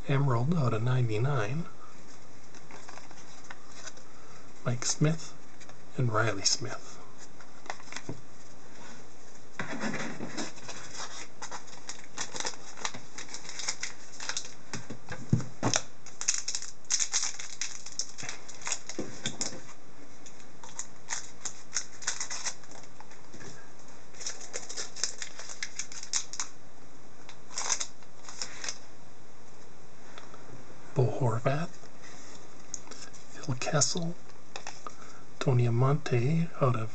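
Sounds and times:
cardboard rustling: 7.2s - 15.8s
foil wrappers crinkling: 10.3s - 14.9s, 15.7s - 23.5s, 24.1s - 26.6s, 27.5s - 28.9s.

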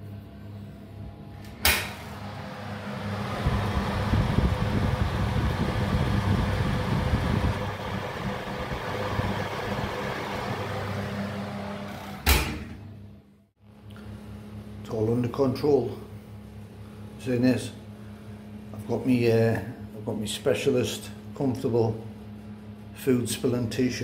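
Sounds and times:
oven fan rushing: 0.0s - 24.0s
oven door shutting with clunk: 1.4s - 2.2s, 12.0s - 12.8s
oven door clicking open: 1.5s - 2.1s.

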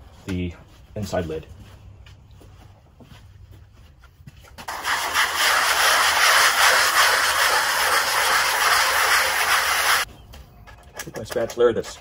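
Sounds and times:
sanding block scrubbing mortar: 4.7s - 10.1s.

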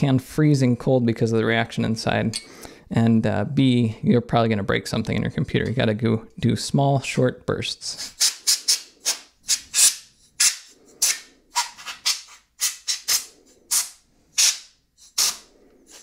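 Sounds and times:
compressed air hissing bursts: 12.6s - 16.0s.

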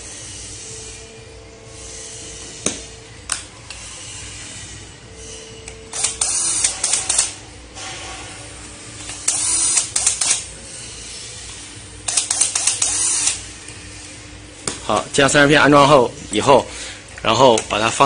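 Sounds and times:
cordless drill driving screws: 5.9s - 7.3s
rapid clicking of drill: 5.9s - 7.3s, 9.2s - 10.4s, 12.1s - 13.4s.

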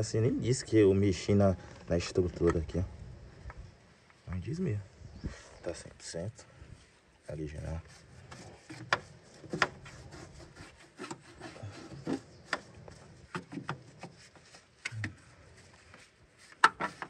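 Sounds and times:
paintbrush scrubbing on metal: 7.2s - 17.0s.

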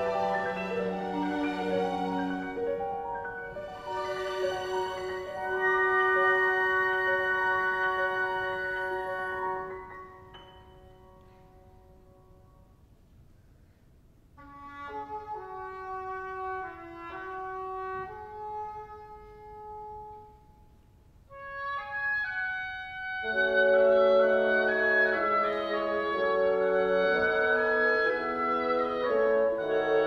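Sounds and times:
symphony orchestra playing: 0.0s - 12.5s, 21.3s - 30.0s.

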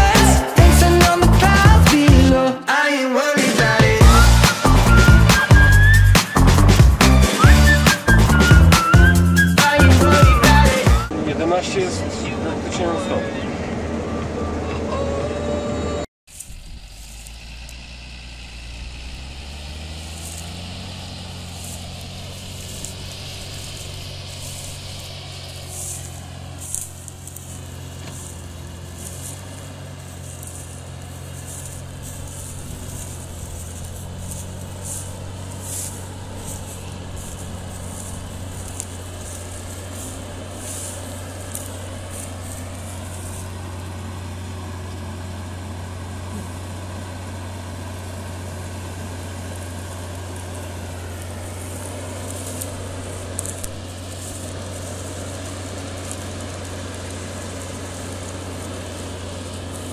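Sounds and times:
tractor diesel engine running: 0.0s - 59.9s
scratchy high hiss: 19.3s - 43.7s.

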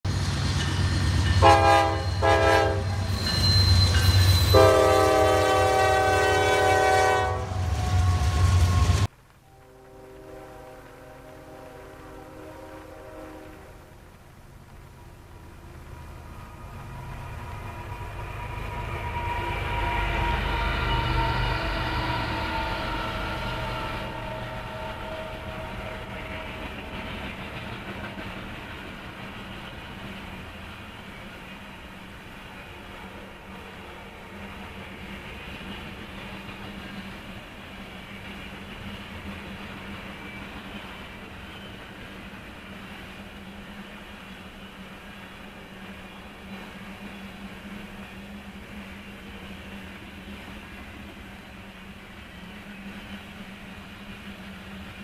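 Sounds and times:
train rumbling: 0.0s - 55.0s
train horn blasts: 1.4s - 13.9s, 18.0s - 26.9s.

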